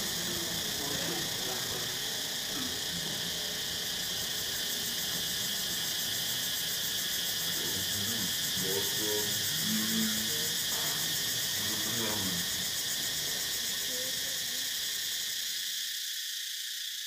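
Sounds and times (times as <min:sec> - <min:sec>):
high-pitched insect chorus: 0:00.0 - 0:17.0
faint voice-like sounds: 0:07.5 - 0:12.7.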